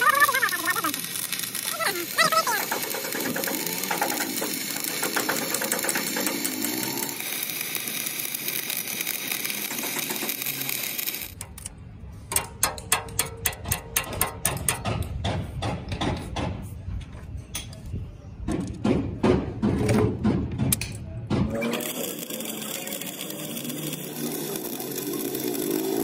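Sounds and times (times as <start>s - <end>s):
welding arc crackling and hissing: 0.0s - 11.7s, 21.6s - 26.0s.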